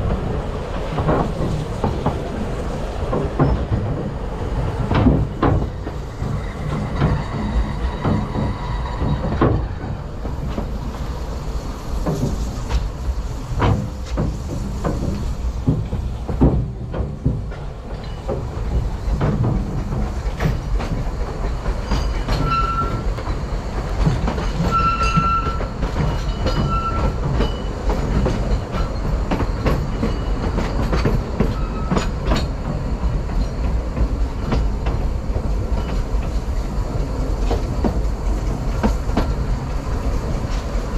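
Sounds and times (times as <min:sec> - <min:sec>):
train wheels rumbling: 0:00.0 - 0:40.9
wheels clicking over rail joints: 0:00.0 - 0:40.9
wheel squeals: 0:03.4 - 0:03.9, 0:06.0 - 0:10.0, 0:21.8 - 0:23.2, 0:24.4 - 0:32.5.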